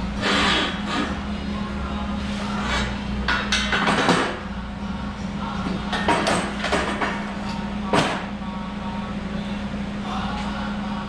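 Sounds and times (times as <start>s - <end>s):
steady low hum: 0.0s - 11.0s
metal scrapes: 2.2s - 3.1s.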